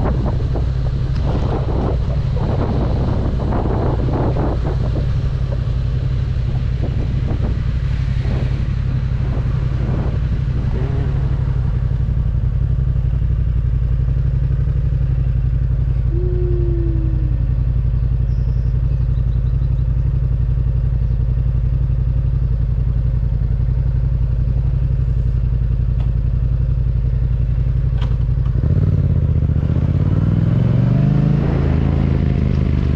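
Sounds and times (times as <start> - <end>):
motorcycle engine running: 0.0 - 32.9.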